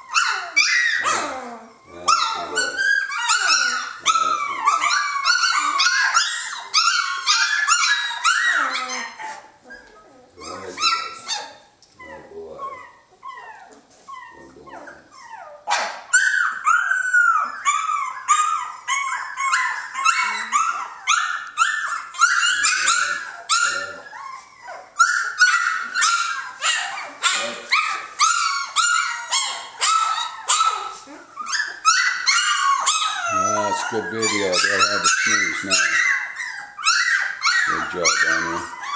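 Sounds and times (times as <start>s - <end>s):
puppies crying and yelping: 0.0s - 38.9s.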